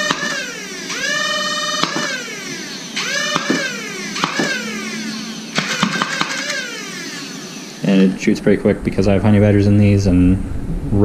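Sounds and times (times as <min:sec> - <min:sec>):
dart blaster motor whine: 0:00.0 - 0:08.3
darts firing with sharp clicks: 0:01.8 - 0:02.3, 0:03.1 - 0:04.7, 0:05.5 - 0:06.6.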